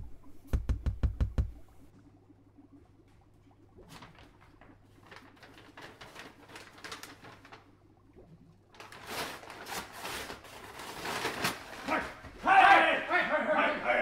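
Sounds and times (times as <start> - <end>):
paper bag crinkling: 3.9 - 7.7, 8.7 - 12.6.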